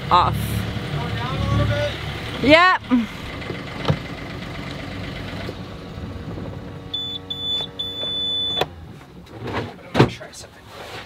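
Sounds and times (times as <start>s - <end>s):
diesel engine idling: 0.0s - 8.9s
alarm buzzer beeping: 6.9s - 8.6s.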